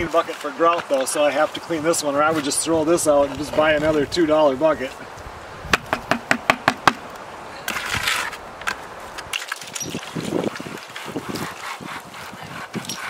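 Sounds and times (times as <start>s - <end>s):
buckets knocking: 5.7s - 7.0s
hose spraying water into bucket: 9.3s - 13.0s.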